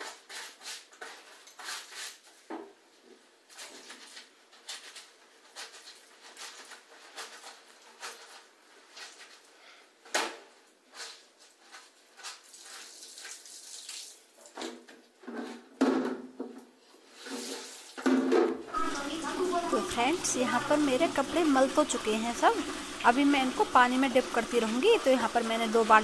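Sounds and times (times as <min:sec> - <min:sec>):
wet soapy cloth rubbed by hand: 0:03.8 - 0:09.7, 0:10.8 - 0:14.5, 0:17.0 - 0:18.0, 0:18.8 - 0:26.0.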